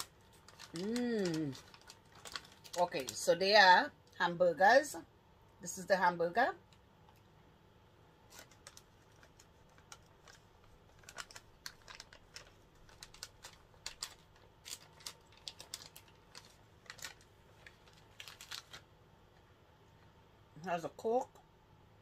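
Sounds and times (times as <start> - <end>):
plastic bag crinkling: 0.0 - 3.6, 8.2 - 19.4.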